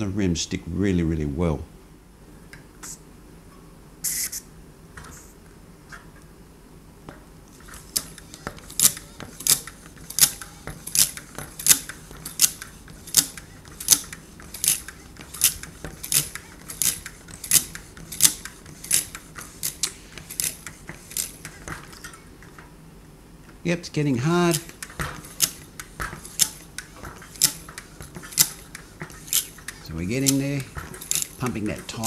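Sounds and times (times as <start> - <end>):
bicycle pump air hisses: 4.0 - 4.5, 7.8 - 21.7, 24.5 - 32.0.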